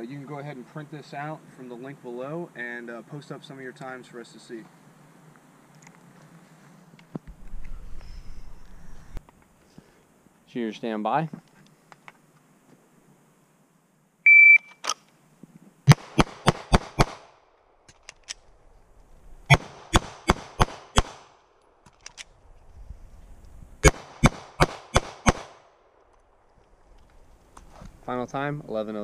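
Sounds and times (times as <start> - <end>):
shot timer beep: 14.3 - 14.8
pistol shots: 15.9 - 17.3, 19.5 - 21.4, 23.8 - 25.7.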